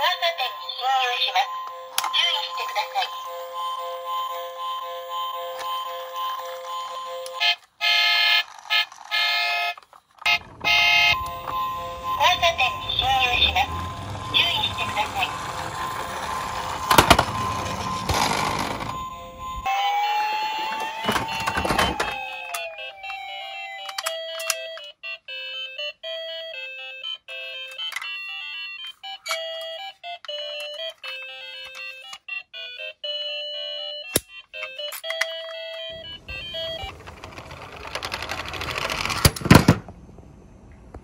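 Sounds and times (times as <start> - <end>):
toy beeping tune: 0.0 - 38.9
toy van rolling down wooden slope: 3.0 - 24.9, 27.4 - 32.4, 34.5 - 40.1
toy van knocking: 5.4 - 25.6, 27.3 - 39.9
electronic siren wail: 7.3 - 24.8
toy cars clattering in a box: 8.3 - 10.4, 11.1 - 19.0, 20.6 - 24.9, 28.8 - 32.2, 34.6 - 39.8.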